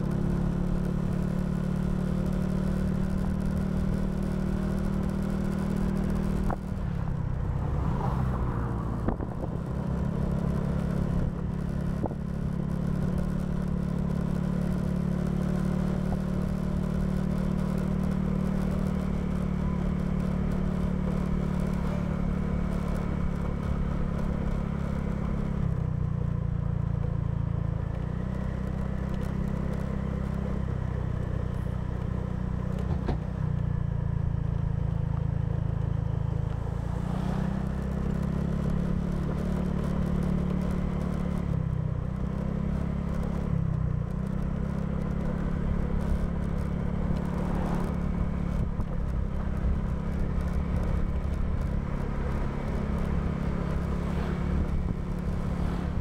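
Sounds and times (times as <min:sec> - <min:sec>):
scooter engine running: 0:00.0 - 0:56.0
wind rumbling on microphone: 0:06.2 - 0:13.3.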